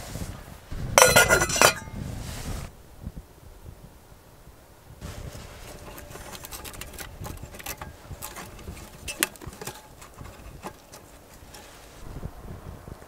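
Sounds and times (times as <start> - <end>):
twig fire crackling and popping: 5.0 - 12.0.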